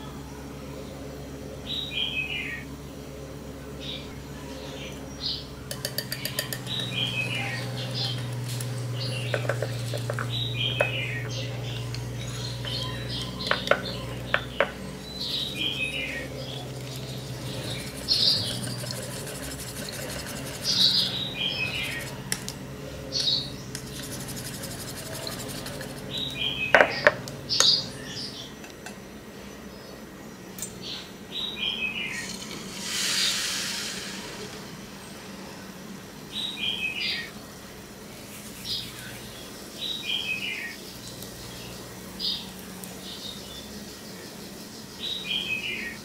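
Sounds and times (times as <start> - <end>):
birds chirping: 0.2 - 46.0
whisk wires clinking on bowl: 5.7 - 8.6, 9.2 - 10.9, 16.7 - 22.4, 23.8 - 26.1
whisk beating batter in bowl: 5.7 - 10.4, 15.4 - 22.5, 23.7 - 26.4.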